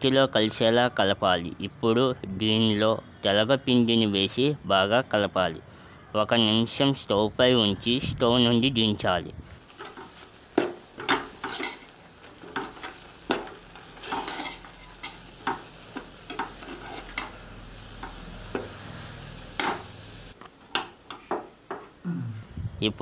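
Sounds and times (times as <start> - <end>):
spoon scraping and knocking pot: 9.6 - 17.4, 18.0 - 18.8, 19.4 - 22.0.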